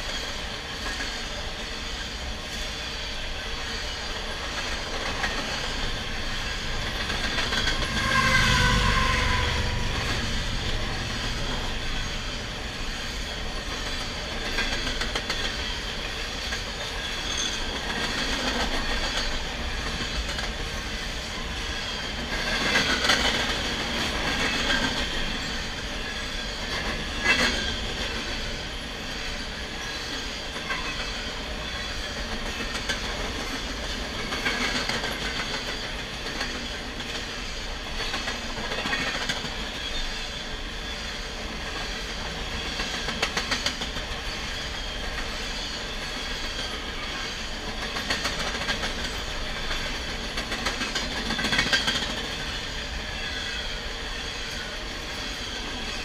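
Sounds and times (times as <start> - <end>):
train wheels clattering over rails: 0.0 - 56.0
high-pitched wheel squeal: 5.8 - 14.1.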